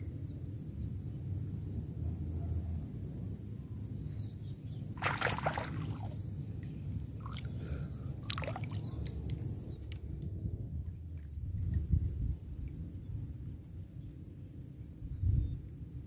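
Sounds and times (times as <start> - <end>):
water splashing and sloshing: 5.0 - 6.2, 7.1 - 9.4
steady low rumble: 5.6 - 16.0.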